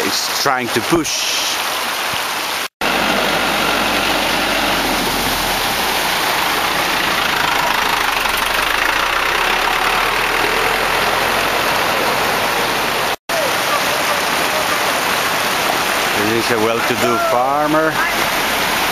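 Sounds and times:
water splashing from wheels: 0:00.0 - 0:18.9
truck engine running: 0:02.8 - 0:13.2.

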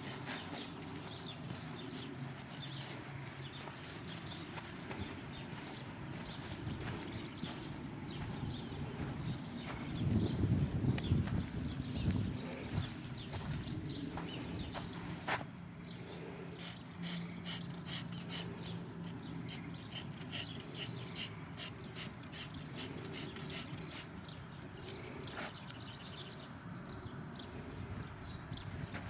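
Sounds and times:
hoof trimming clicks and scrapes: 0:00.0 - 0:08.4, 0:16.1 - 0:26.2.

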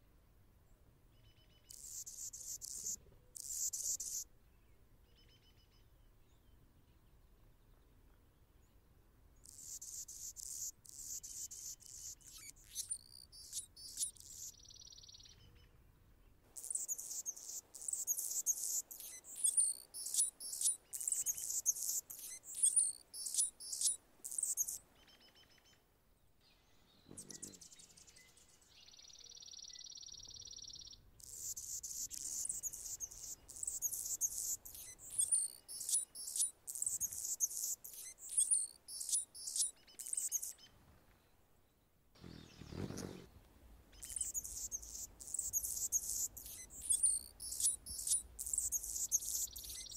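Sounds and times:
hummingbird singing: 0:01.7 - 0:04.3, 0:09.5 - 0:15.3, 0:16.6 - 0:24.8, 0:27.0 - 0:28.3, 0:28.9 - 0:40.6, 0:42.2 - 0:43.4, 0:44.0 - 0:49.9.

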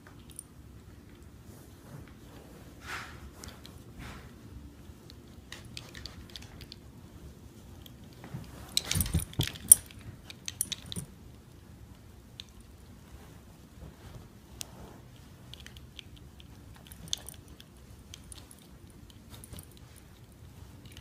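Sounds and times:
chain collar and tags jangling: 0:08.8 - 0:11.1.

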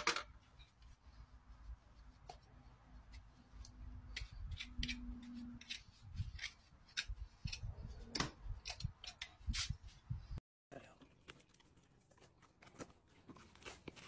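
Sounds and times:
scraping strokes on horse hoof: 0:00.5 - 0:10.0.

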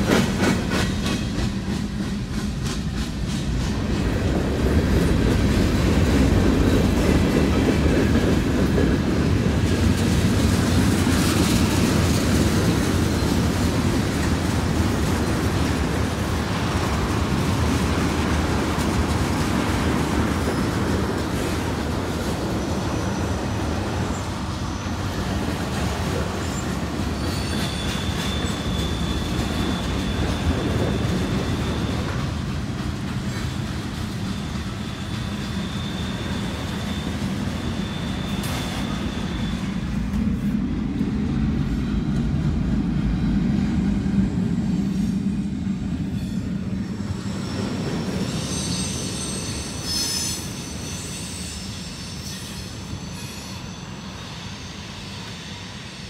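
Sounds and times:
steel wheels rumbling on rail: 0:00.0 - 0:56.0
high wheel squeal: 0:11.1 - 0:40.5, 0:46.0 - 0:56.0.

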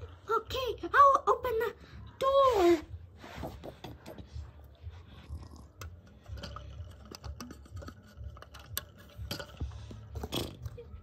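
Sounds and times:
small handling clicks and scrapes: 0:05.7 - 0:10.8.

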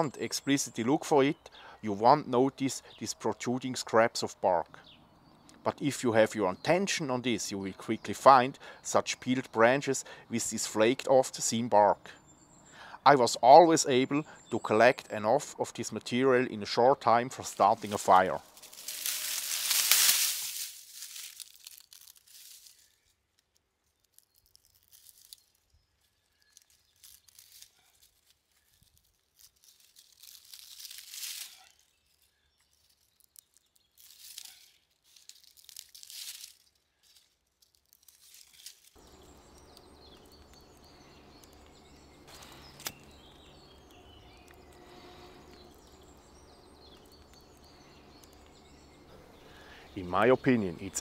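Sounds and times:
bark tearing crackles: 0:17.4 - 0:49.7.

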